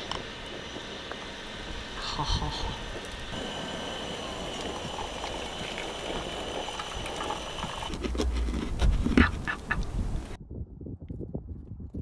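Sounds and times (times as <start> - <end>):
water pouring into coffee filter: 3.0 - 8.0.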